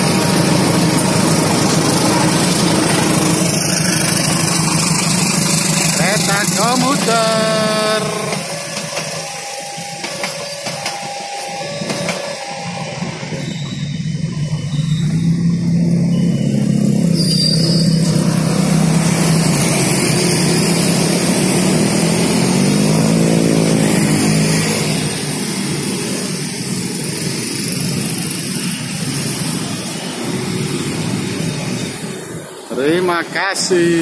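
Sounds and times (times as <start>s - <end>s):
motorcycles and cars accelerating: 0.2s - 8.0s, 15.2s - 32.3s.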